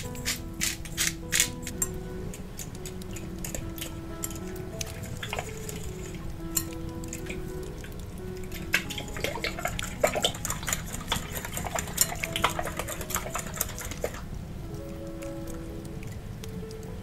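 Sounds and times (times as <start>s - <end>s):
quiet background music: 0.0s - 17.0s
whisk clicking against glass bowl: 8.7s - 14.2s.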